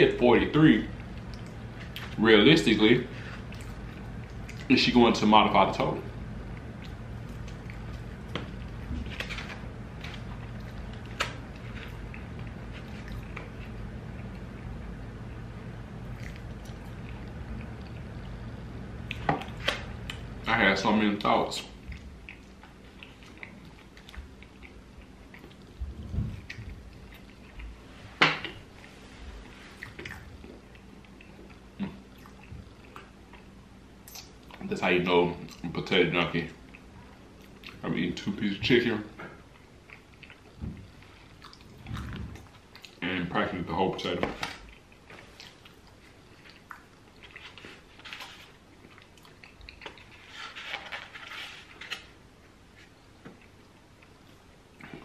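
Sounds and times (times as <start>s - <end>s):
person chewing food: 0.9s - 2.2s, 3.1s - 4.7s, 6.2s - 15.0s, 15.7s - 20.4s, 21.6s - 34.7s, 36.6s - 37.8s, 39.4s - 43.0s, 44.6s - 52.0s
mouth smacks and clicks: 34.0s - 34.6s.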